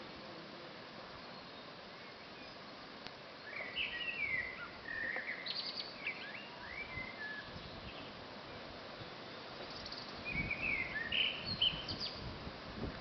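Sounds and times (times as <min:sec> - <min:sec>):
steady outdoor hiss: 0:00.0 - 0:13.0
songbird whistling with trill: 0:03.5 - 0:08.0, 0:09.9 - 0:12.2.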